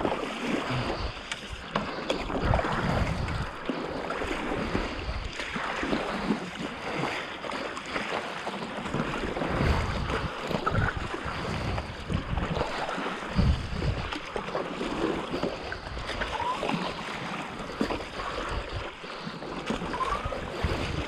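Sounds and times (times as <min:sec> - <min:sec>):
water sloshing around paddleboard: 0:00.0 - 0:21.0
wind gusting on microphone: 0:02.2 - 0:05.4, 0:08.9 - 0:14.4, 0:17.7 - 0:21.0.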